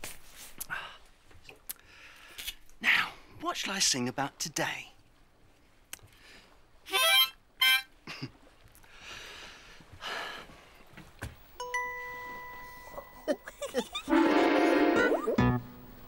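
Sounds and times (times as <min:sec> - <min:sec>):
steady ringing tone: 0:11.6 - 0:13.7
loud sustained chord: 0:14.1 - 0:16.0
mouth organ notes: 0:14.1 - 0:16.0.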